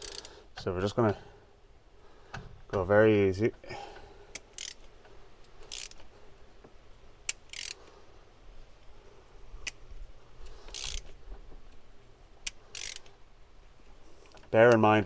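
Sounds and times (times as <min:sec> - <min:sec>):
ratchet wrench strokes: 0:00.0 - 0:00.3, 0:04.3 - 0:04.9, 0:05.6 - 0:06.1, 0:07.3 - 0:07.9, 0:10.6 - 0:11.2, 0:12.4 - 0:13.2.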